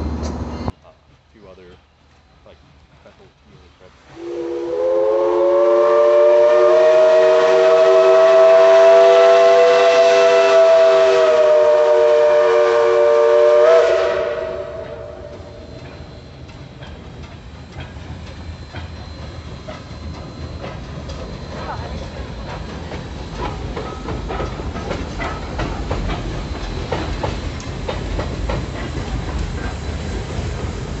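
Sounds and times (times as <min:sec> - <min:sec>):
train wheels clicking on rails: 0:00.0 - 0:31.0
steam whistle blast: 0:04.1 - 0:15.9.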